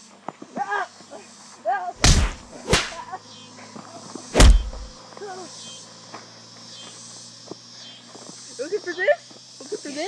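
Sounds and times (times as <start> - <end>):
heavy thumps: 2.0 - 3.0, 4.4 - 4.9.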